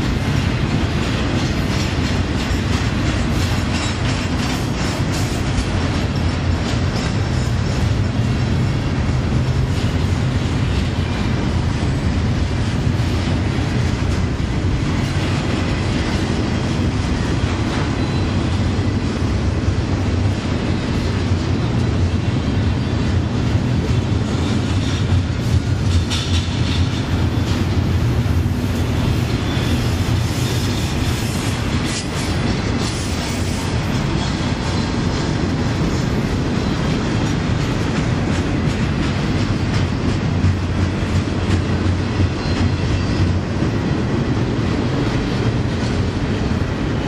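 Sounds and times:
freight train wheels rumbling on rails: 0:00.0 - 0:47.0.

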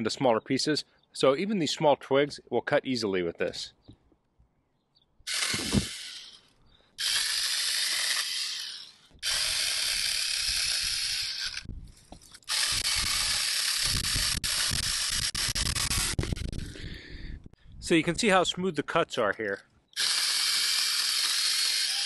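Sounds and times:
mini chainsaw cutting wood: 0:05.3 - 0:16.8, 0:20.0 - 0:22.0.

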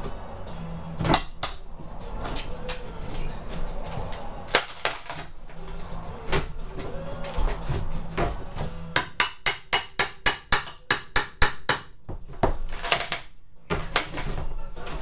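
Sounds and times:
hammer striking metal pry bar: 0:01.0 - 0:01.7, 0:09.0 - 0:12.0.

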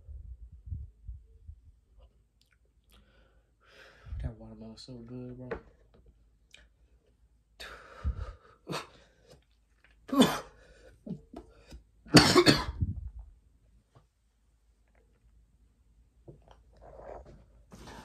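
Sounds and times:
man coughing: 0:10.1 - 0:10.5, 0:12.1 - 0:12.8.

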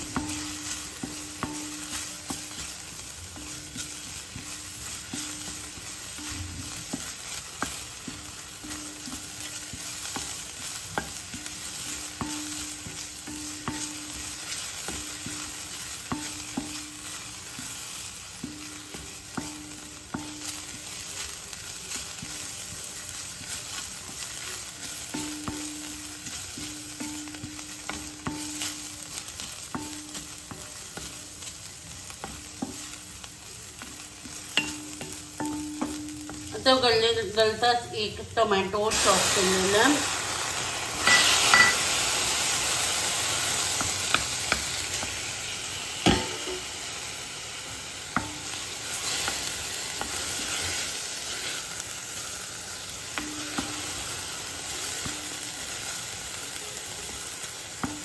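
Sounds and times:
onions sizzling in oil: 0:00.0 - 0:58.0
spatula scraping a metal pan: 0:48.2 - 0:51.9.

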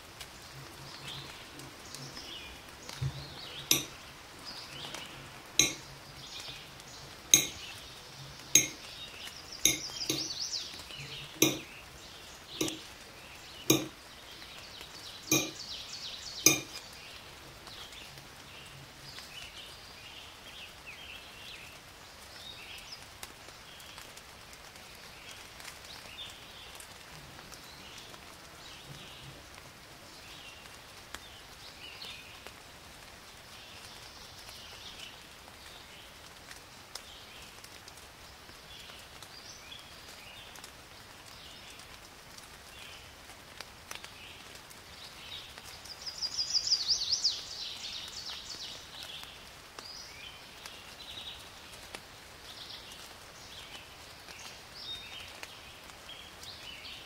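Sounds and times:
knife knocking on ceramic plate: 0:03.7 - 0:03.9, 0:05.6 - 0:05.8, 0:07.4 - 0:07.6, 0:08.6 - 0:08.8, 0:09.7 - 0:10.3, 0:11.4 - 0:11.7, 0:12.6 - 0:12.8, 0:13.7 - 0:14.0, 0:15.3 - 0:15.6, 0:16.5 - 0:16.8.

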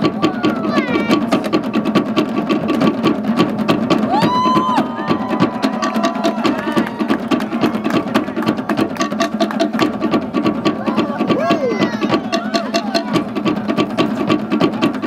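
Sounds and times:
fast wooden log drumming: 0:00.0 - 0:15.0
high held shout: 0:04.1 - 0:08.1, 0:10.8 - 0:13.2.

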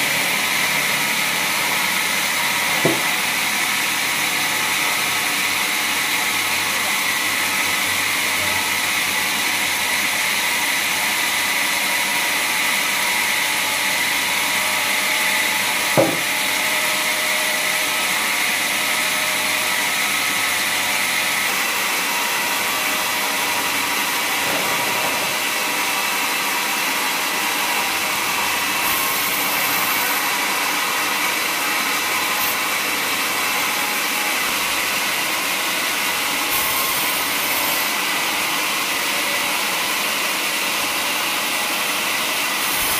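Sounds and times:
bandsaw blade cutting log: 0:00.0 - 0:05.5, 0:13.2 - 0:25.9, 0:28.1 - 0:39.0, 0:42.2 - 0:42.9
sharp knock: 0:02.8 - 0:03.1, 0:16.0 - 0:16.4.

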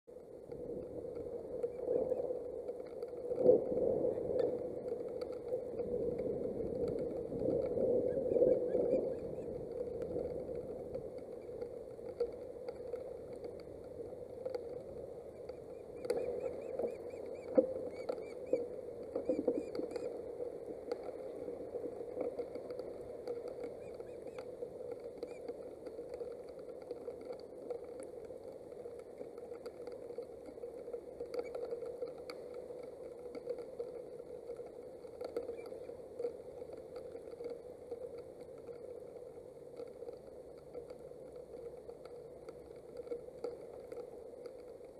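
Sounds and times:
rain hiss: 0:00.2 - 0:44.9
wind gusts: 0:00.4 - 0:25.0.

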